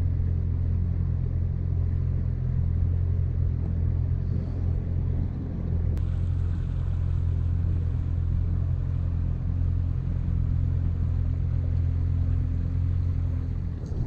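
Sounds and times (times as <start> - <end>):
outboard motor droning: 0.0 - 14.0
water noise: 0.0 - 14.0
wind noise: 13.4 - 14.0.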